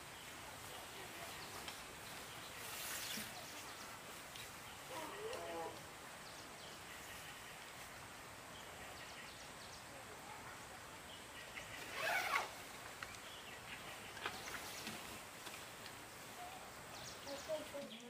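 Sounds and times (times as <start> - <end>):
faint rural background: 0.0 - 18.0
jacket zipper pulled: 11.8 - 12.5.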